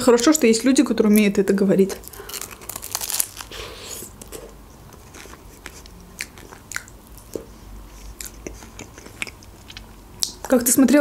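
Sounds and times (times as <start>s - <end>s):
biting into crisp pastry crust: 2.0s - 7.4s
close-miked chewing: 2.0s - 10.6s
wet mouth clicks: 5.6s - 10.5s.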